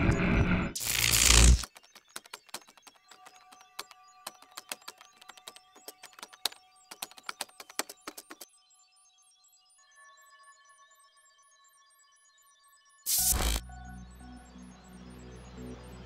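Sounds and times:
keystroke clicks: 0.8s - 8.4s.

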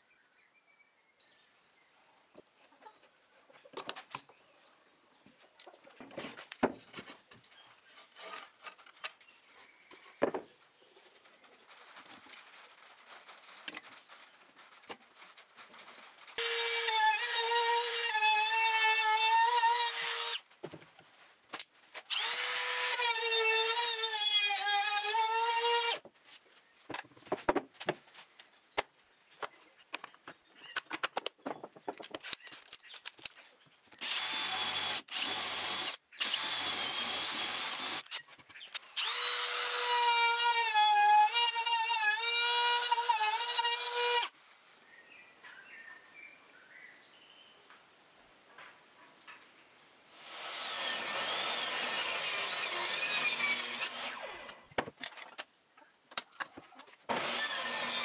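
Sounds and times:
cordless drill driving screws: 22.1s - 26.0s, 34.0s - 44.3s, 50.2s - 54.6s, 57.1s - 58.0s.

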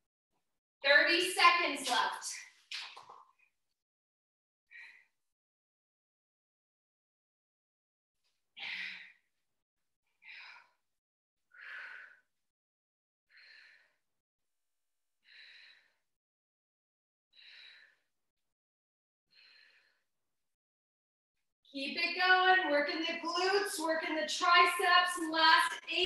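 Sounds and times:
woman breathing heavily: 8.6s - 9.3s, 11.5s - 12.3s, 13.3s - 14.0s, 15.2s - 16.1s, 17.4s - 18.1s.

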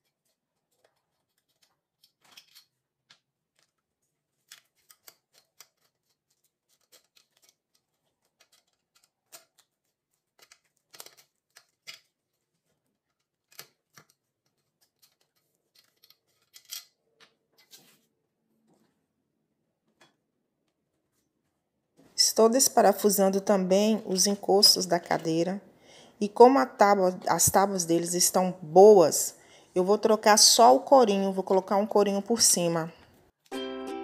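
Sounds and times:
screwdriver clicks and scrapes: 0.9s - 2.8s, 4.5s - 9.7s, 10.4s - 12.2s, 13.1s - 17.0s.

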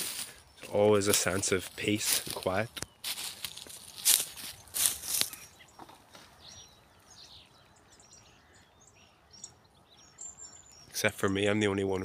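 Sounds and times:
small birds chirping: 0.0s - 12.0s
loud rustling crackles: 1.0s - 5.4s.

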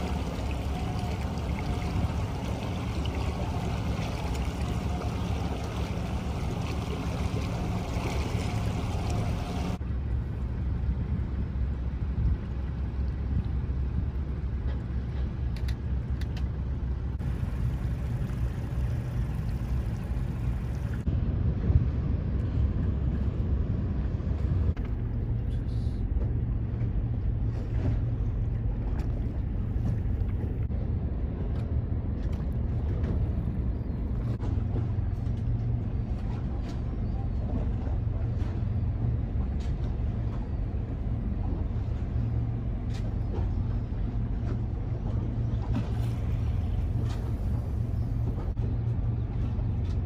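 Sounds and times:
water splashing: 0.0s - 9.8s, 17.2s - 21.1s, 34.1s - 48.6s
boat engine rumble: 0.0s - 50.0s.

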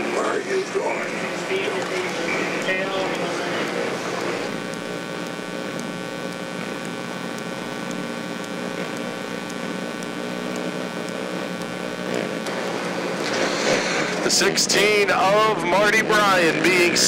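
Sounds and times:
race car engines running: 0.0s - 7.2s, 11.0s - 17.0s.

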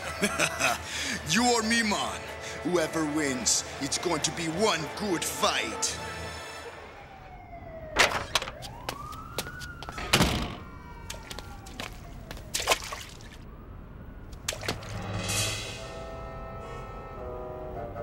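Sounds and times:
siren-like gliding tones: 3.8s - 12.5s.

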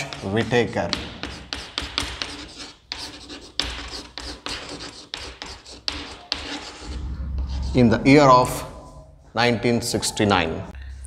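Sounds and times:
chalk scratching on chalkboard: 0.0s - 7.0s.

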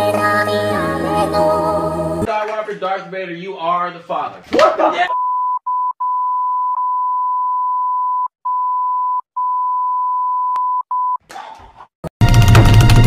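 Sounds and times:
censor bleep: 5.1s - 11.2s.

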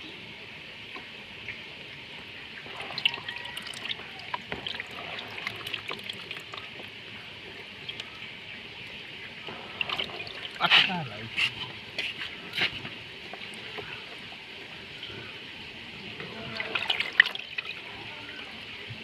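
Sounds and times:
water trickling and dripping: 0.7s - 19.0s
small splashes and sharp ticks: 2.7s - 7.0s, 7.8s - 8.2s.

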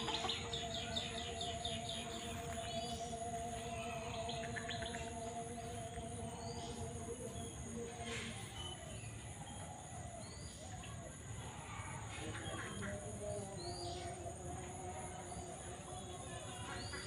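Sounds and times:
high-pitched insect drone: 0.0s - 9.8s
faint steady hum: 0.0s - 16.9s.

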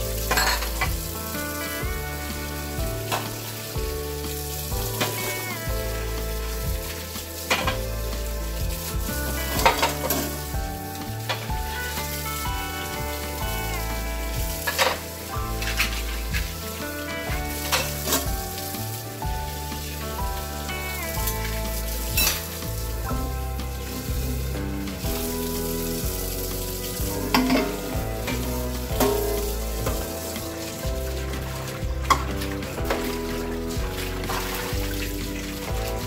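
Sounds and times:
background music: 0.0s - 36.0s
tap water running: 0.0s - 36.0s
ceramic bowls clinking: 0.2s - 1.0s, 22.2s - 22.5s, 27.2s - 30.1s.

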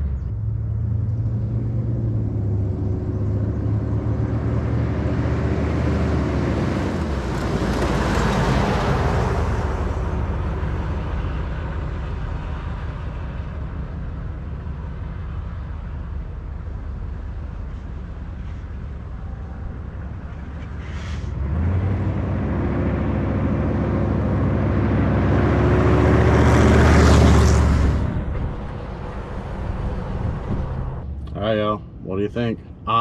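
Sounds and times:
diesel engine driving past: 0.0s - 32.0s.

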